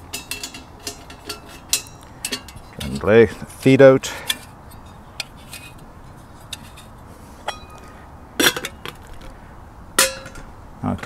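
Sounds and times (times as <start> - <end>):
metal stove and pot clinking: 0.0 - 3.2, 6.4 - 9.0, 10.0 - 10.5
metal ringing tone: 7.4 - 7.9.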